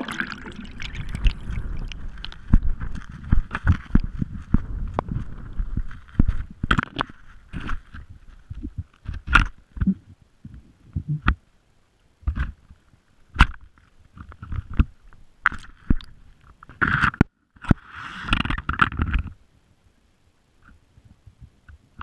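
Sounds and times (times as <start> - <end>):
rough underwater scrape: 0.0 - 8.4, 17.8 - 18.6
muffled underwater knocks and clicks: 0.0 - 11.4, 13.4 - 19.4.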